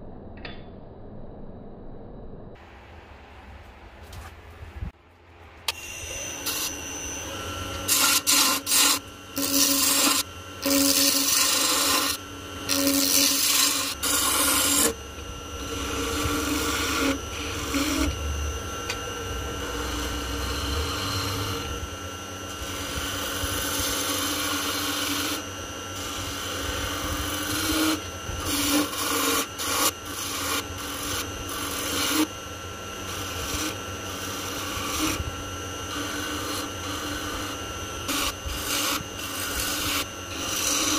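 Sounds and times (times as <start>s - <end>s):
wood lathe humming: 5.7s - 40.9s
turning tool scraping wood: 6.0s - 18.2s, 22.5s - 25.4s, 26.0s - 32.3s, 33.0s - 40.9s.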